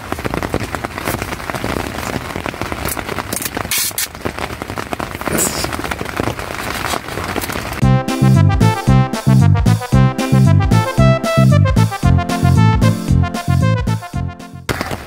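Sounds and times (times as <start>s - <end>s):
heavy rain on tent: 0.0s - 7.8s, 14.7s - 15.0s
tape being pulled and torn: 3.4s - 4.1s.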